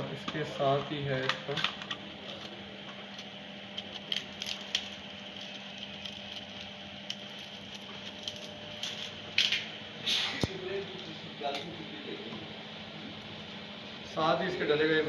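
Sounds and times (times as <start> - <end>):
low steady hum: 0.0 - 15.0
plastic packaging crackling: 3.7 - 9.6.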